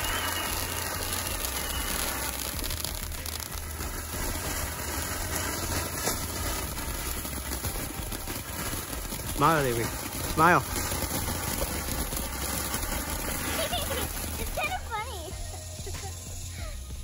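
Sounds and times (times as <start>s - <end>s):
firework spraying sparks hiss: 0.0s - 17.0s.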